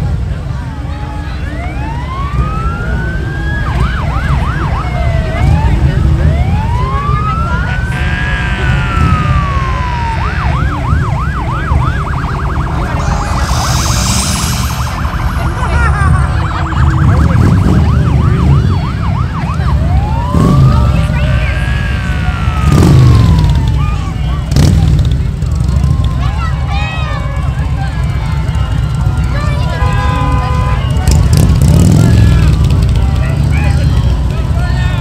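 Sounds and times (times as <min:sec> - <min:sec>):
emergency vehicle sirens: 0:00.0 - 0:35.0
low engine rumble: 0:04.9 - 0:35.0
higher sweeping siren tone: 0:08.8 - 0:21.2.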